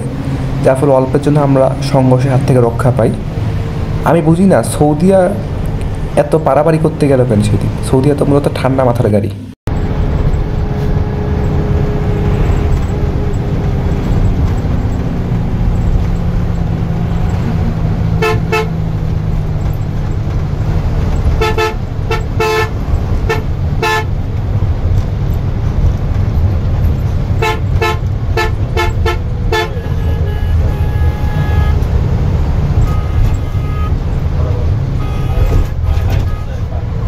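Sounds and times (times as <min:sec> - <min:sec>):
coach engine and road drone: 0:00.0 - 0:37.0
vehicle horn honks: 0:18.2 - 0:18.8, 0:21.4 - 0:24.1, 0:27.4 - 0:31.9, 0:32.8 - 0:34.0, 0:34.9 - 0:36.6.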